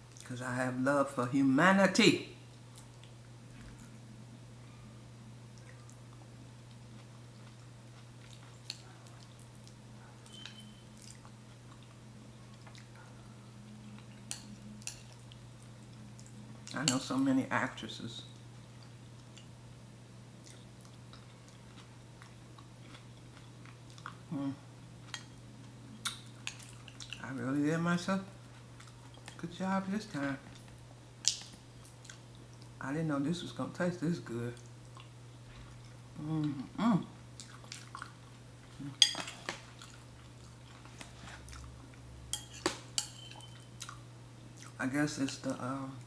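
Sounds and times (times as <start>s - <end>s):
person chewing with wet smacks: 5.5s - 16.9s, 18.3s - 19.6s, 20.4s - 27.2s, 28.4s - 29.4s, 30.4s - 32.8s, 34.6s - 45.5s
person humming: 24.3s - 24.7s, 36.2s - 37.2s, 38.8s - 39.0s.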